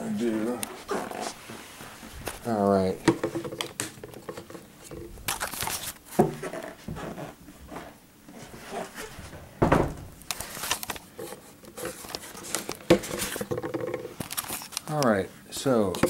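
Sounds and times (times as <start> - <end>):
camera handling rustles and clicks: 5.3 - 6.0, 10.2 - 13.5, 14.2 - 14.9
loud knock: 9.6 - 10.1.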